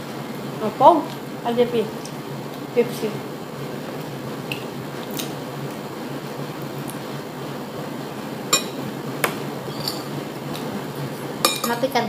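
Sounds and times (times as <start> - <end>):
steady background hum: 0.0 - 12.0
tableware clinking: 8.5 - 8.8, 9.7 - 10.2, 11.4 - 11.8.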